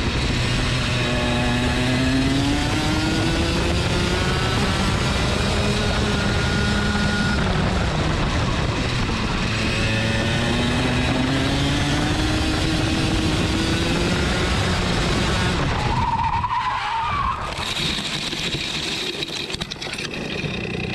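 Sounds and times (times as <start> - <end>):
go-kart engine at high revs: 0.0 - 20.9
gravel stones rattling: 17.4 - 20.9.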